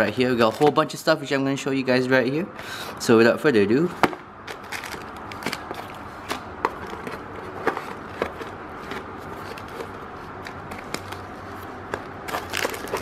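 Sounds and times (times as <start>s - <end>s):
packaging rustling: 4.5s - 13.0s.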